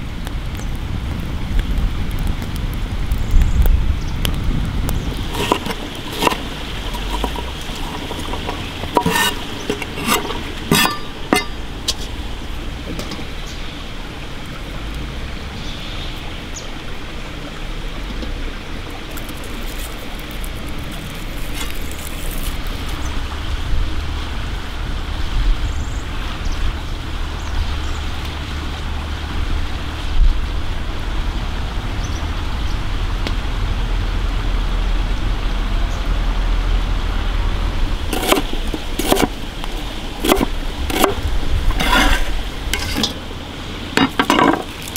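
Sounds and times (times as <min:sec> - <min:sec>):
forest stream rushing: 0:00.0 - 0:44.9
knife chopping on wooden board: 0:38.2 - 0:39.3, 0:40.2 - 0:41.2.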